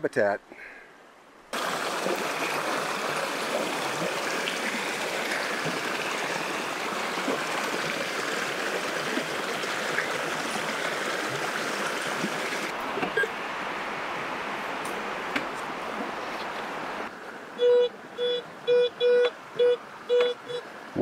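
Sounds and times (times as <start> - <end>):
creek water rushing: 1.5 - 17.6.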